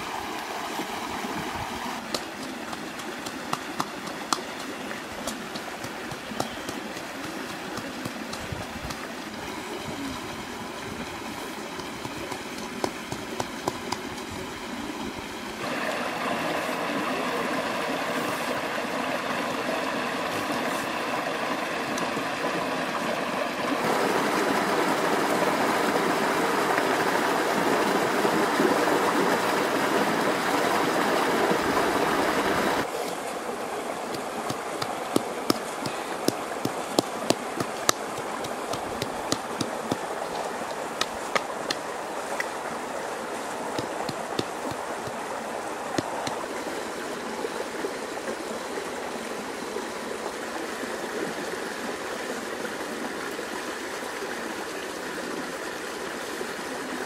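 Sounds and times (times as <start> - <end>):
river rushing over rocks: 0.0 - 47.8
sharp clicks and taps: 2.1 - 9.0, 34.2 - 41.8.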